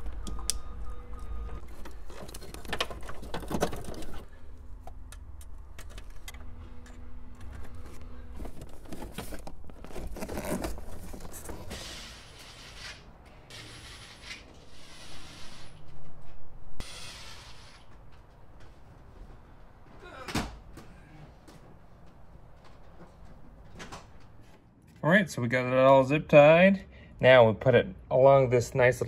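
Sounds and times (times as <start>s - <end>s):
cables rustling: 7.4s - 11.8s.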